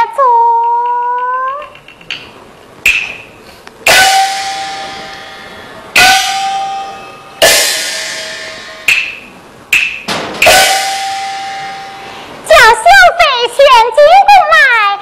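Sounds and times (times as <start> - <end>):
ringing gong strikes: 3.9 - 8.9, 10.4 - 12.4
sharp percussion clacks: 3.9 - 12.1.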